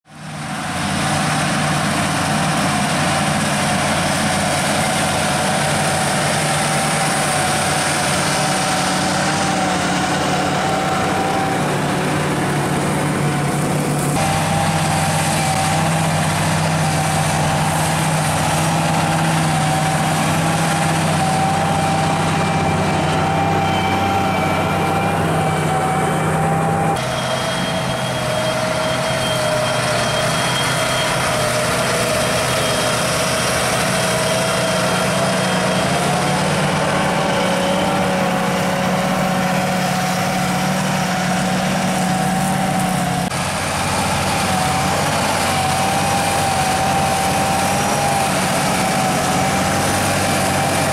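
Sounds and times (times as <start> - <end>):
tractor diesel engine under load: 0.0 - 50.9.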